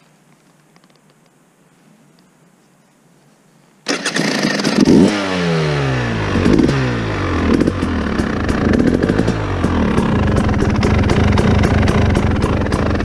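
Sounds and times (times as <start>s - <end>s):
two-stroke dirt bike engine revving: 3.9s - 13.0s.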